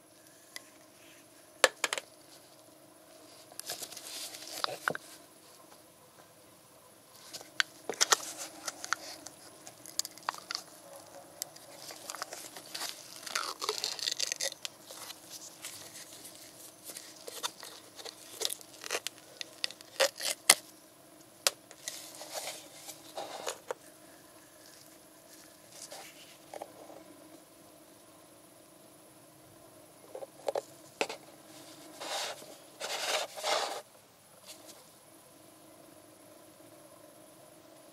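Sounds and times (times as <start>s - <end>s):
foil crinkling: 7.2s - 20.7s
foil seal tearing: 7.3s - 20.6s.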